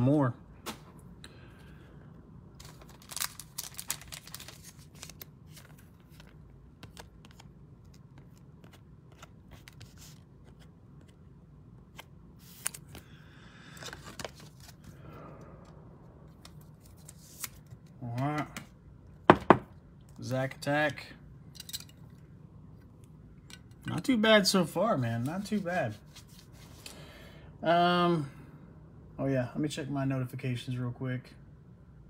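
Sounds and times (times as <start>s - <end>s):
cards rustling: 2.6s - 15.0s, 16.3s - 18.7s, 25.0s - 27.0s.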